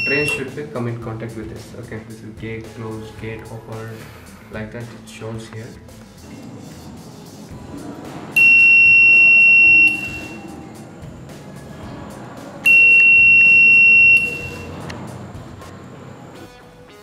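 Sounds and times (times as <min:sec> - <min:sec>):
electronic buzzer beeps: 0:00.0 - 0:00.5, 0:08.4 - 0:10.4, 0:12.6 - 0:14.8.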